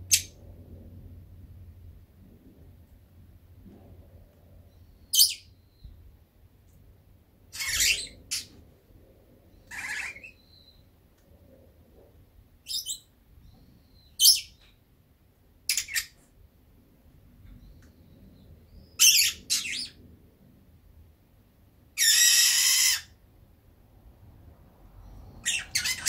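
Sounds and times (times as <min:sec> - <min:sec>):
bird chirping and squawking: 0:04.8 - 0:05.5, 0:07.5 - 0:08.6, 0:09.5 - 0:10.8, 0:12.7 - 0:13.1, 0:14.0 - 0:14.6, 0:15.7 - 0:16.2, 0:18.8 - 0:20.0, 0:22.0 - 0:23.2, 0:25.1 - 0:26.0.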